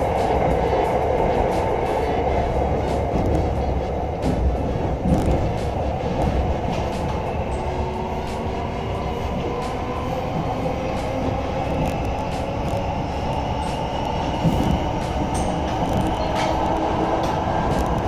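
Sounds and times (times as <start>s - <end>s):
train wheels rumbling on track: 0.0s - 18.0s.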